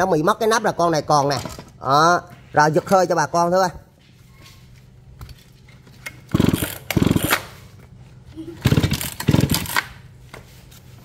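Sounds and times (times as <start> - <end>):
chainsaw recoil starter pulled: 6.1 - 7.6, 8.6 - 10.0
engine turning over without starting: 6.1 - 7.6, 8.5 - 10.0.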